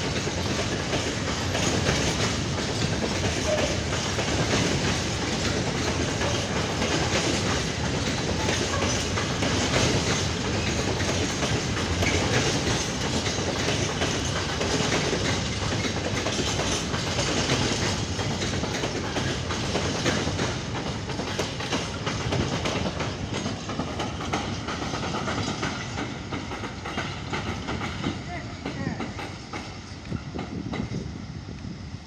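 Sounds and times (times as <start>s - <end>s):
wheels clicking over rail joints: 0.0s - 31.0s
freight train rumbling past: 0.0s - 32.0s.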